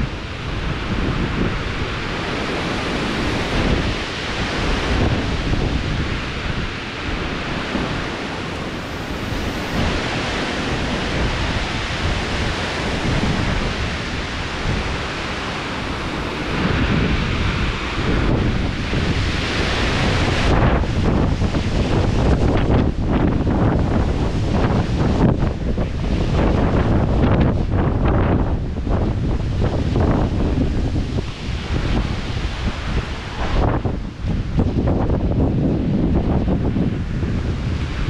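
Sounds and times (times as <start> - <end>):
strong wind rushing: 0.0 - 38.0
wind buffeting microphone: 0.0 - 38.0.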